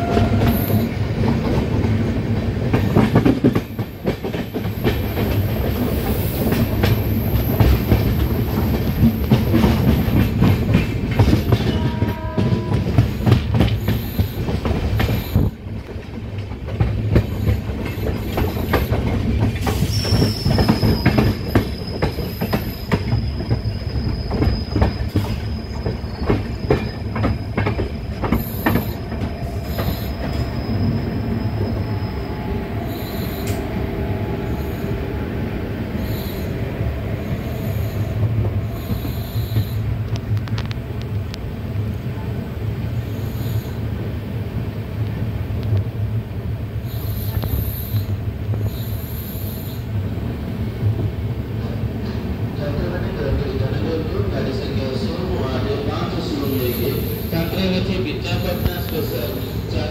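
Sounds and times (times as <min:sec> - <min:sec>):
train wheels clattering on track: 0:00.0 - 0:34.7, 0:37.3 - 0:59.9
high wheel squeal: 0:19.7 - 0:35.2.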